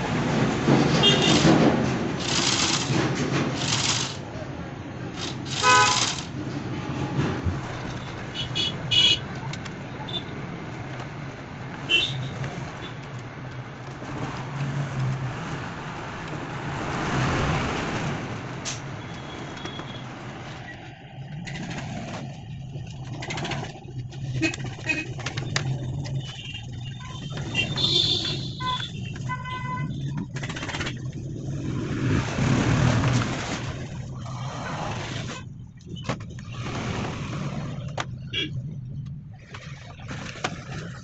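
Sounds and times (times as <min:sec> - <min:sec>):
road traffic passing: 0:00.0 - 0:41.0
plastic toy parts clicking: 0:03.6 - 0:04.2.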